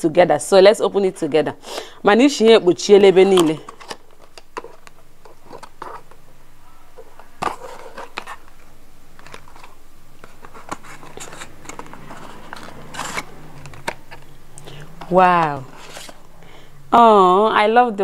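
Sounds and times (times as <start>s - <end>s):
cardboard box rustling: 7.3s - 16.4s.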